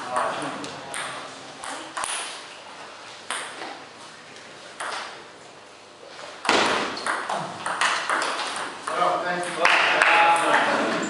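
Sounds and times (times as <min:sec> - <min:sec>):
table tennis ball knocks: 0:06.4 - 0:09.9.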